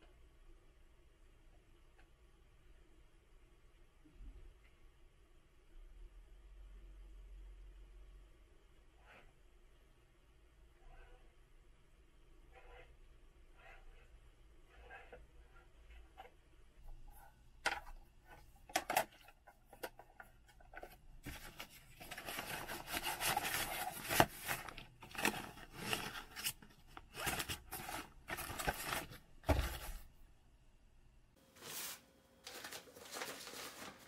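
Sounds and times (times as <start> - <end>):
nylon pouch rustling: 21.2 - 30.0.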